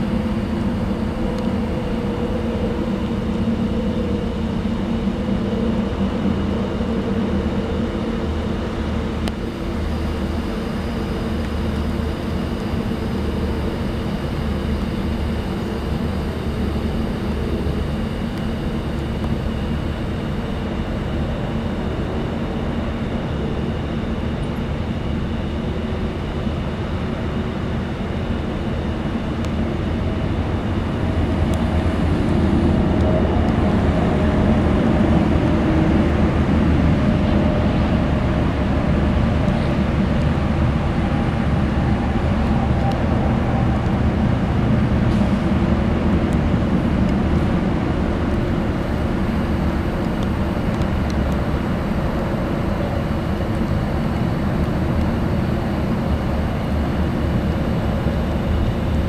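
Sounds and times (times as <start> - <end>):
vehicle engines humming: 29.9 - 59.0.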